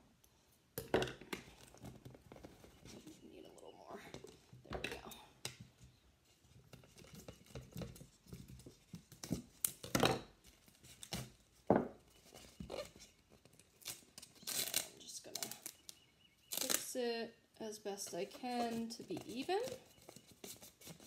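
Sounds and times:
duct tape tearing: 0:13.6 - 0:15.8, 0:16.5 - 0:16.9.

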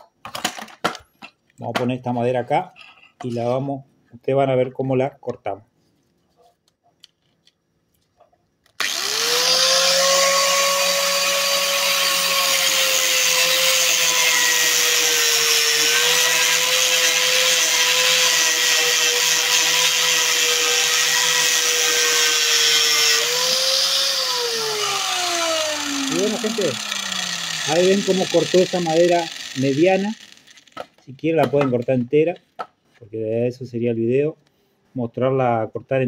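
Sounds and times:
grinder motor winding down: 0:08.8 - 0:30.8
angle grinder cutting wood: 0:08.8 - 0:31.0.

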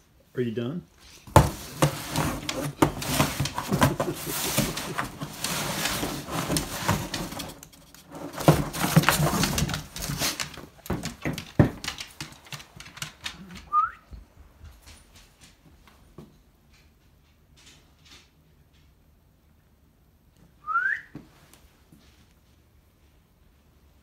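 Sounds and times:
dog tearing cardboard box: 0:01.2 - 0:12.0.

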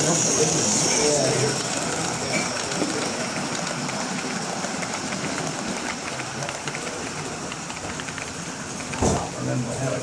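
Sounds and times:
model train wheels rumbling: 0:00.0 - 0:10.0
rail joint clicks: 0:01.5 - 0:09.4.

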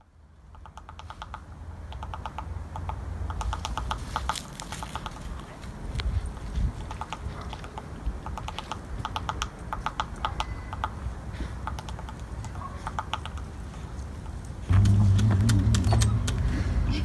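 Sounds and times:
woodpecker tapping on branch: 0:00.5 - 0:06.1, 0:06.8 - 0:11.0, 0:11.6 - 0:13.6.

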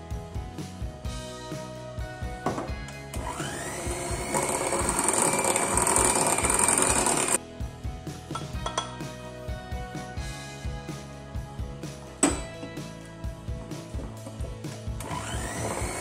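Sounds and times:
background music: 0:00.0 - 0:16.0
electric hand mixer whining: 0:03.1 - 0:07.4, 0:15.0 - 0:16.0.

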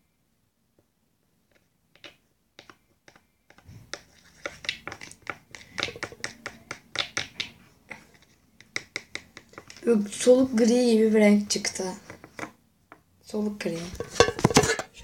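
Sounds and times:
pen tapping and scraping plastic: 0:01.5 - 0:09.8, 0:12.0 - 0:13.0.

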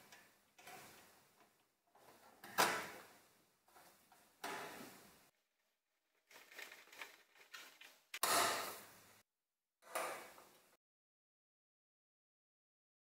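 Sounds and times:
metal parts clattering and scraping: 0:06.3 - 0:08.2.

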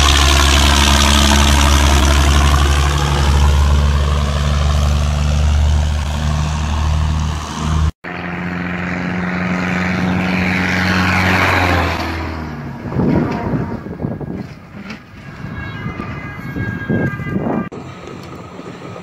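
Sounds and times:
engine drone: 0:00.0 - 0:19.0
tractor diesel engine droning: 0:00.0 - 0:19.0
rushing wind and road noise: 0:09.3 - 0:19.0.

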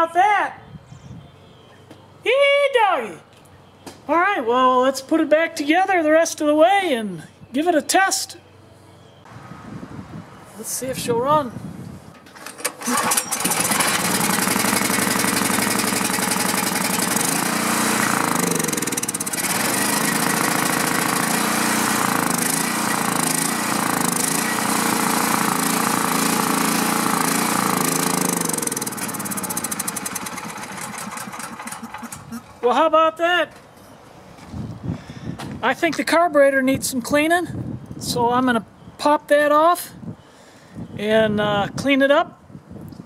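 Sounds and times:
generator engine running: 0:12.2 - 0:32.8.

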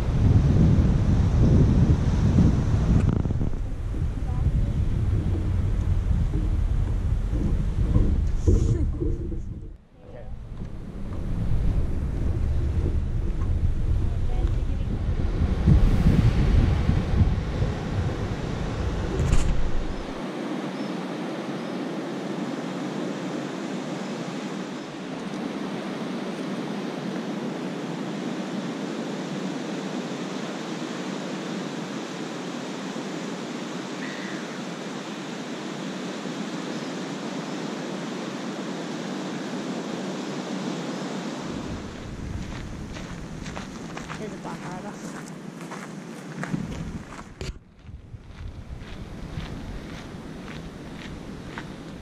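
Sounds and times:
wind buffeting microphone: 0:00.0 - 0:20.5, 0:41.4 - 0:52.0
ocean surf breaking: 0:10.3 - 0:47.2.

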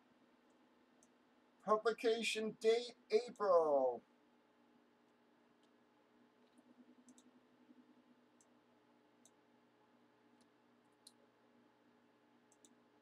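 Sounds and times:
faint steady hum: 0:00.0 - 0:13.0
computer mouse clicks: 0:06.4 - 0:08.6, 0:09.2 - 0:09.4, 0:10.3 - 0:11.2, 0:12.5 - 0:12.8.

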